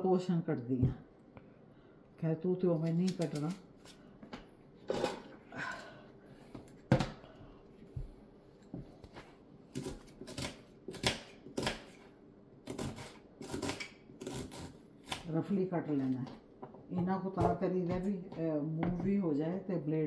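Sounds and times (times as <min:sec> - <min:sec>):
knife chopping on plastic board: 0:09.1 - 0:12.0.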